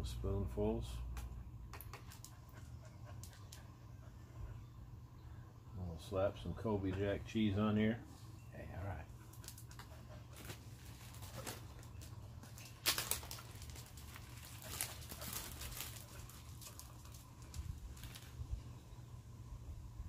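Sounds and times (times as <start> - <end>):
low steady rumble: 0.0 - 20.0
hands handling food: 9.2 - 18.4.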